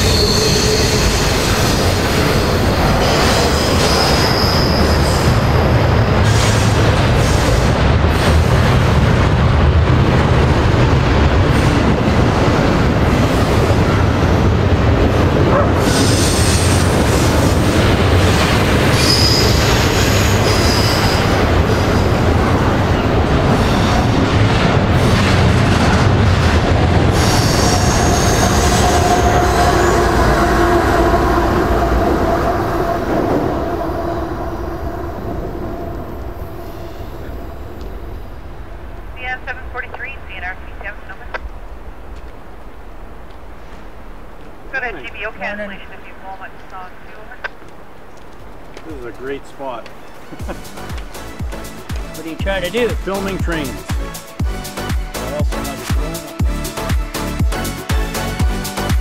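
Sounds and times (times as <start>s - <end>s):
high-pitched wheel squeal: 0.0s - 2.8s, 3.4s - 5.4s, 18.9s - 21.4s, 27.2s - 30.3s
train wheels rumbling on rail: 0.0s - 40.4s, 47.4s - 54.6s.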